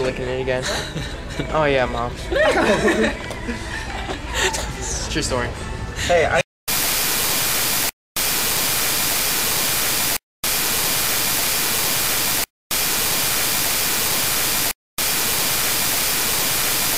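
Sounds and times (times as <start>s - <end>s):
static white noise hiss: 6.7s - 16.9s.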